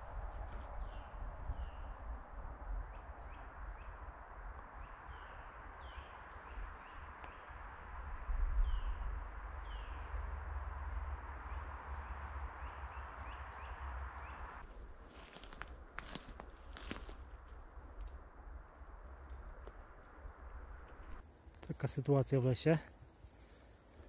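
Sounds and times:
small birds chirping: 2.8 - 10.4.

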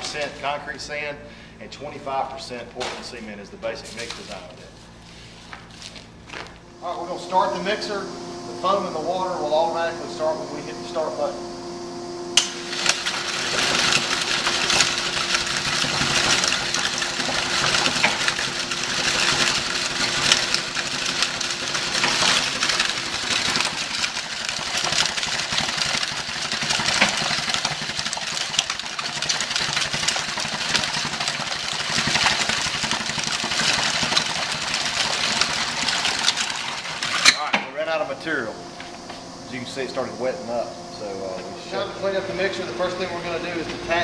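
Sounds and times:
steady hum: 0.0 - 44.0
mortar mixer rattling: 12.4 - 37.8.

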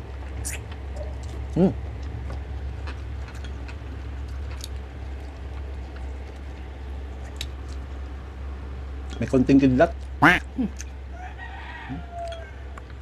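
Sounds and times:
chewing and mouth smacks: 0.0 - 8.1
steady low hum: 0.0 - 13.0.

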